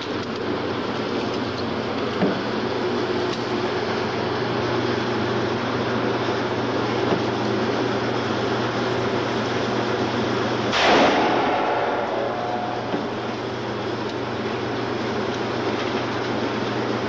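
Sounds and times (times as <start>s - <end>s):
background hum and hiss: 0.0s - 17.0s
handgun shot echoing: 10.8s - 13.2s.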